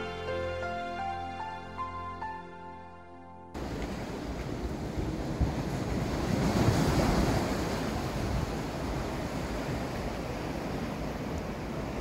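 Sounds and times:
sea surf washing onto shore: 3.6s - 12.0s.

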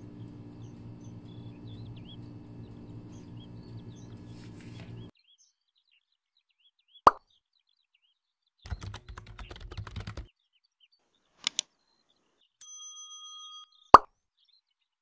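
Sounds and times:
steady low hum: 0.0s - 5.1s
small birds chirping: 0.0s - 12.6s, 13.6s - 15.0s.

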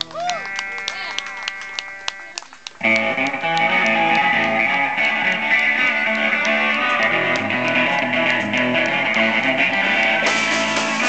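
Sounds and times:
electric guitar chord ringing: 2.8s - 11.0s
rock band playing: 2.8s - 11.0s.

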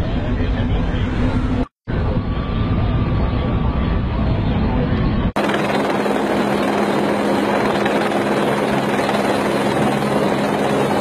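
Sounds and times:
helicopter rotor and engine: 3.3s - 11.0s.

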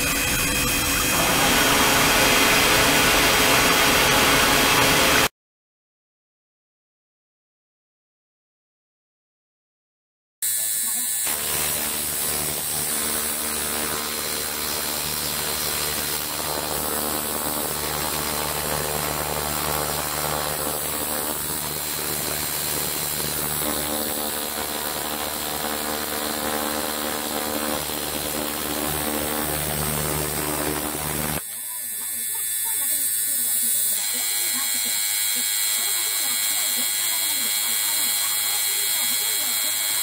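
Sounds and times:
cleaning tank pump humming: 0.0s - 5.3s, 11.3s - 31.4s.

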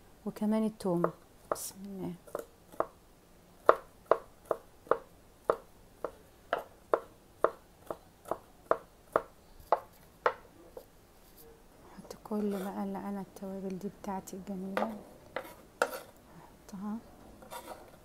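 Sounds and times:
knife chopping on wooden board: 3.6s - 10.9s, 14.7s - 16.1s.

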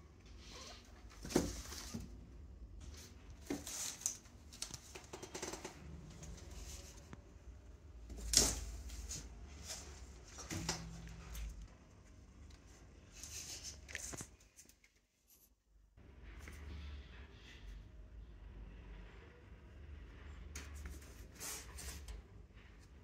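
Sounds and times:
cats scuffling: 0.4s - 2.2s, 2.8s - 7.2s, 8.0s - 15.4s.

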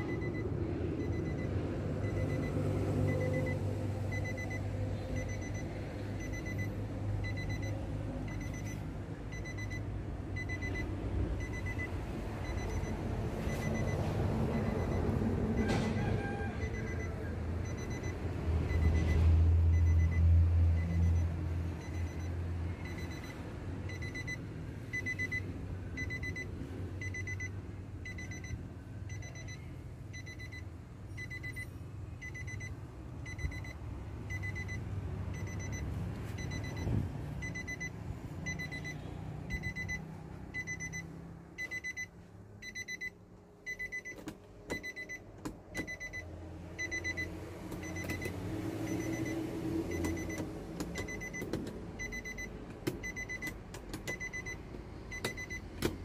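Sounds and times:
warning chime beeping: 0.0s - 9.8s, 35.4s - 44.2s.

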